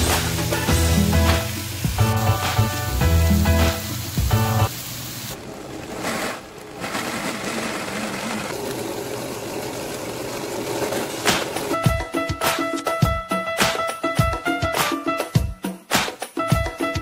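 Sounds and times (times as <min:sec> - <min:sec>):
blender motor running: 0:04.3 - 0:11.8.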